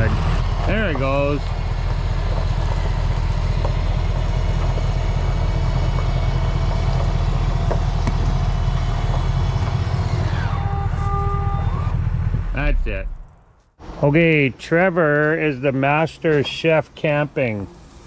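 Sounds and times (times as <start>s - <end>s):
electric motor whine: 0.0s - 12.8s
diesel engine idling: 0.0s - 13.5s.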